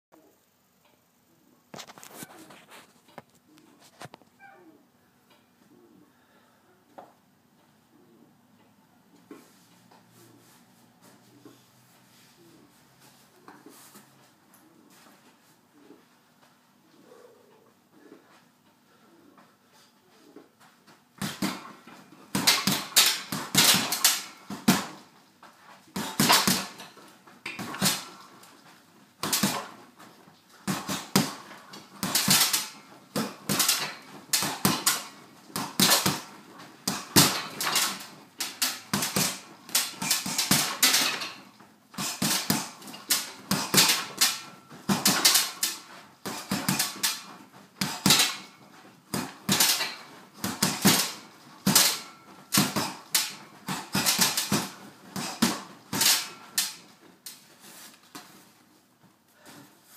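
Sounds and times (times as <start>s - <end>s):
gloves punching heavy bag: 21.2s - 25.2s, 25.9s - 28.6s, 29.2s - 56.9s.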